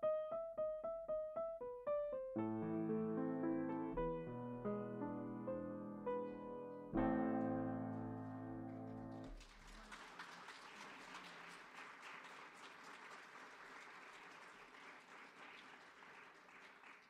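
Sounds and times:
piano chord: 0:00.0 - 0:09.3
faint applause: 0:08.9 - 0:17.0.

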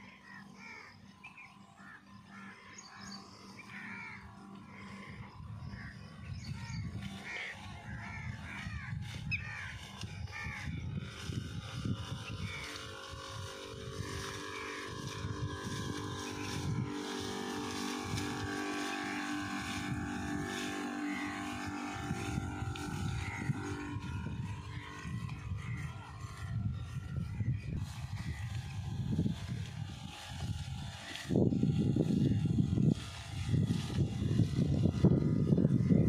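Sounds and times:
birds chirping: 0:00.0 - 0:10.9
steady mechanical hum: 0:00.0 - 0:36.0
wind on microphone: 0:05.1 - 0:36.0.

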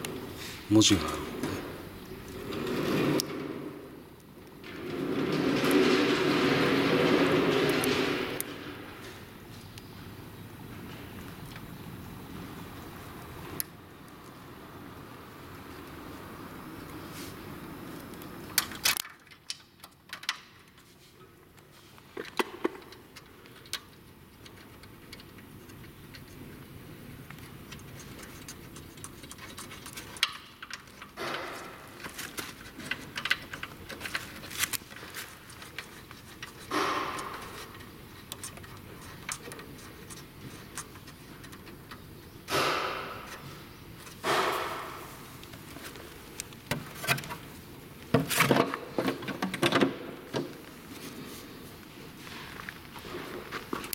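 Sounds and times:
wires and connectors clicking: 0:22.0 - 0:50.7.

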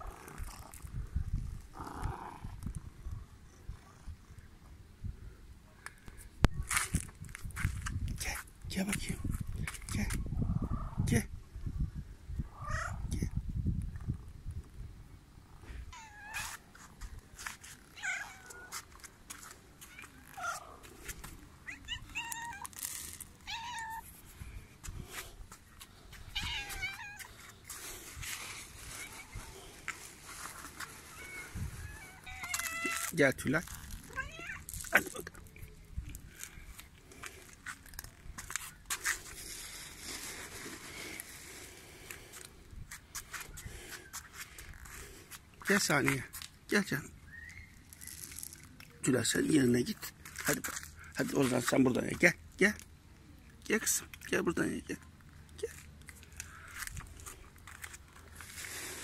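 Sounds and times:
cat meowing: 0:15.9 - 0:16.6, 0:18.0 - 0:18.7, 0:21.6 - 0:22.7, 0:23.4 - 0:24.0, 0:26.3 - 0:27.3, 0:31.2 - 0:33.1, 0:34.1 - 0:34.6.

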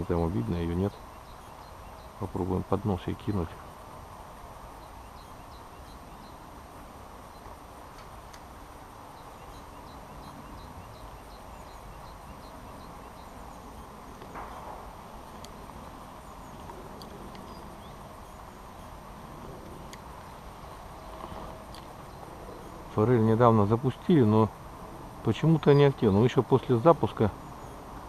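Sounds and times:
faint high ticks: 0:07.4 - 0:08.5, 0:14.1 - 0:18.0, 0:19.6 - 0:20.4, 0:21.0 - 0:22.1.

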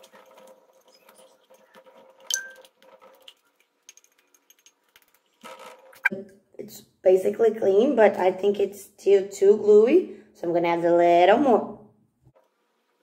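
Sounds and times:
knife clinking on glass: 0:02.3 - 0:02.7.

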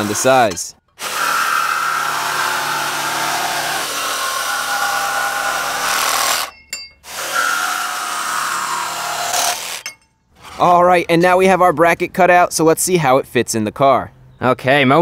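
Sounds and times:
jigsaw cutting aluminum sheet: 0:00.0 - 0:09.9.

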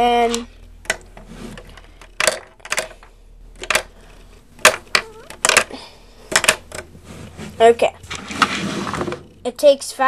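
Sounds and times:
plastic bricks clicking: 0:00.8 - 0:03.9, 0:04.6 - 0:06.9.

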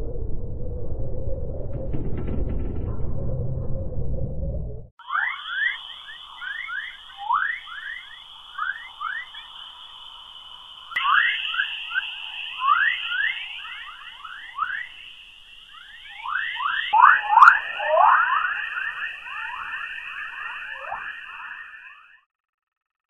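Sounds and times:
stream of quick chirps: 0:05.0 - 0:22.2
steady high hiss: 0:05.1 - 0:22.1.

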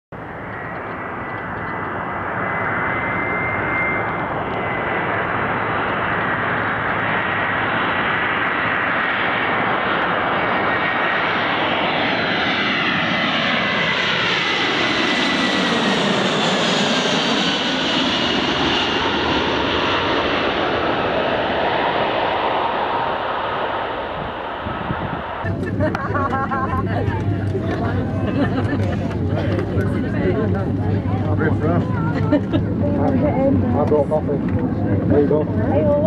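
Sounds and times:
hollow swish of passing aircraft: 0:00.2 - 0:26.0
jet engines roaring: 0:00.2 - 0:36.0.

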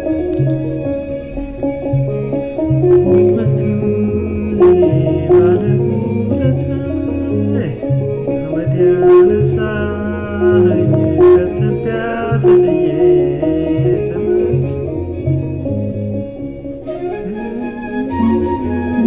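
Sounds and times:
repeating low bass: 0:00.0 - 0:16.8
plucked string instruments: 0:00.0 - 0:19.0.

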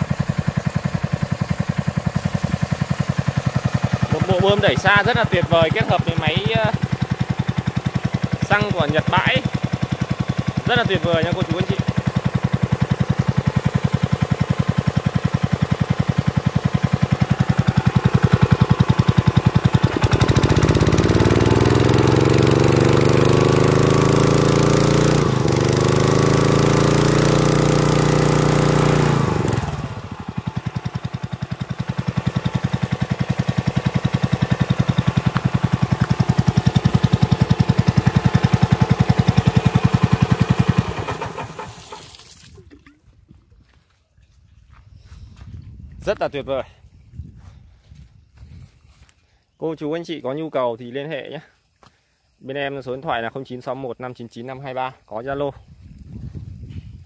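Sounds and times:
small engine running: 0:00.0 - 0:42.6
water jet hissing: 0:01.3 - 0:04.9, 0:40.5 - 0:42.8.

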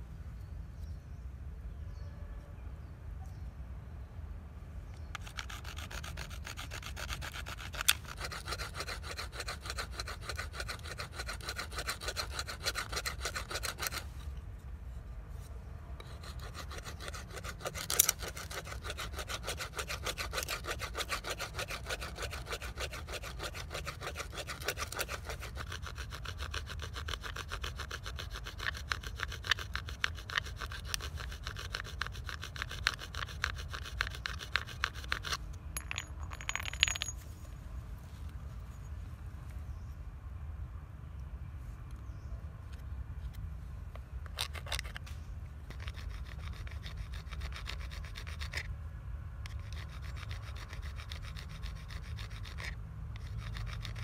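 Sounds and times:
stone blade scraping bamboo: 0:05.0 - 0:14.4, 0:16.0 - 0:37.1, 0:44.2 - 0:48.7, 0:49.4 - 0:54.0.

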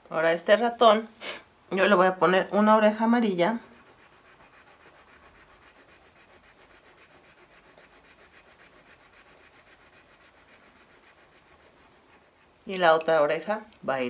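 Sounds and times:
pencil scratching on paper: 0:02.3 - 0:12.9.

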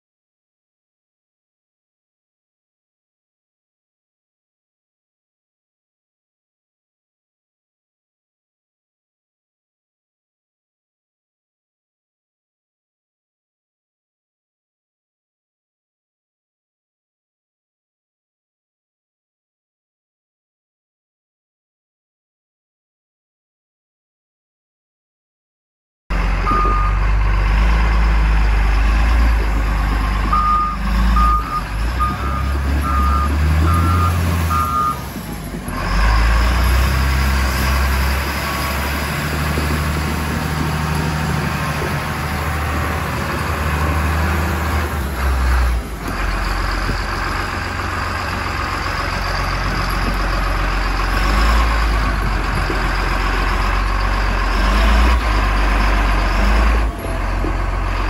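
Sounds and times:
diesel engine rumbling: 0:26.1 - 0:58.0
reversing alarm beeping: 0:26.4 - 0:27.1, 0:30.2 - 0:35.1.

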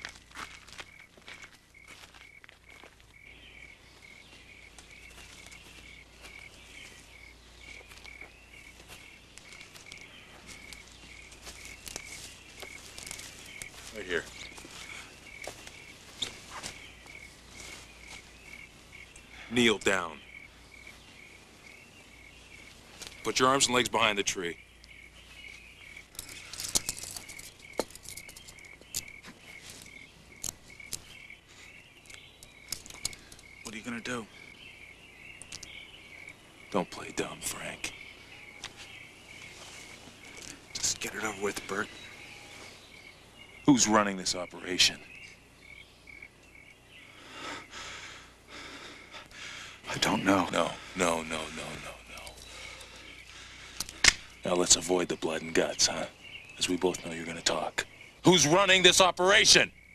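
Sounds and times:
cricket chirping: 0:00.0 - 0:59.9
night woods ambience: 0:00.0 - 0:59.9
footsteps through leaf litter: 0:11.3 - 0:16.8.

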